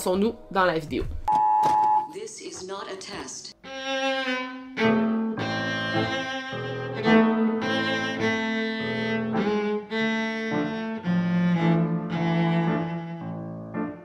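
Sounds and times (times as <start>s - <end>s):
violin and cello melody: 3.6s - 14.0s.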